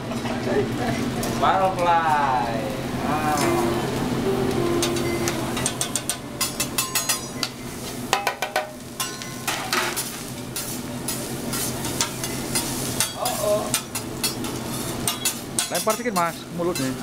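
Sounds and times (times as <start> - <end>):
rice and egg sizzling: 0.0 - 17.0
metal spatula scraping on griddle: 9.0 - 16.9.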